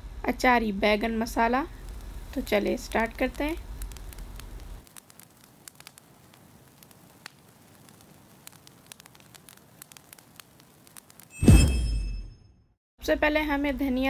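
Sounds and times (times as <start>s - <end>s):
low hiss: 0.0s - 11.4s
fire crackling: 0.0s - 12.1s.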